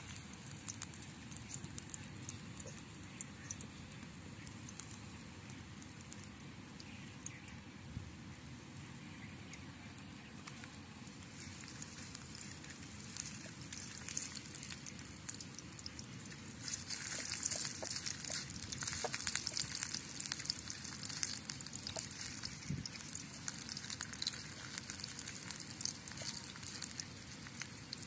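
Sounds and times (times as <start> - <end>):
food sizzling in hot oil: 11.2 - 28.0.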